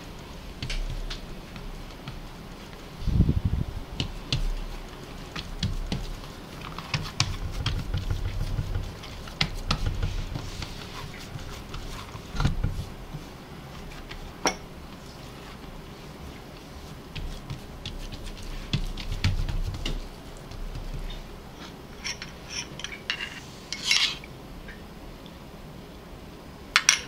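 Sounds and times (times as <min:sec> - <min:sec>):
hands thumping and slapping dough: 0:03.8 - 0:15.0, 0:16.6 - 0:21.3.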